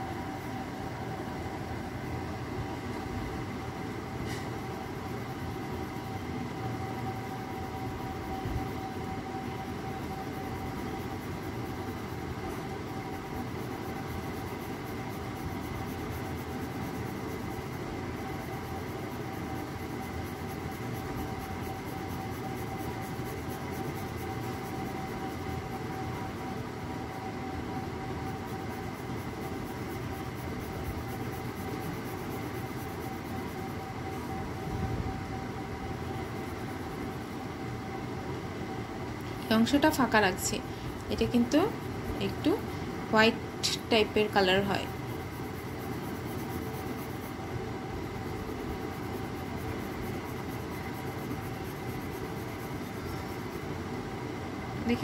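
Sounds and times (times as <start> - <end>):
steady mechanical hum: 0.0 - 55.0
pencil shading on paper: 6.0 - 34.2, 41.2 - 53.7.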